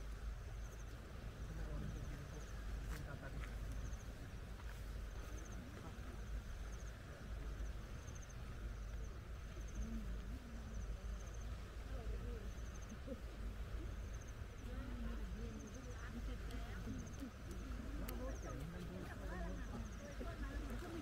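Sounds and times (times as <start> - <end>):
distant people talking: 5.1 - 21.0.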